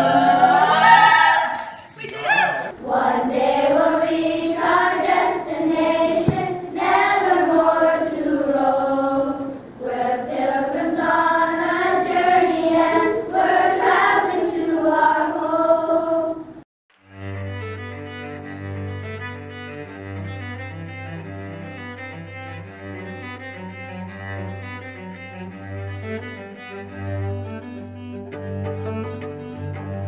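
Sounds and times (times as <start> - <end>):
children's choir singing: 0.0 - 1.8, 2.6 - 16.6
slow instrumental music: 16.9 - 30.0.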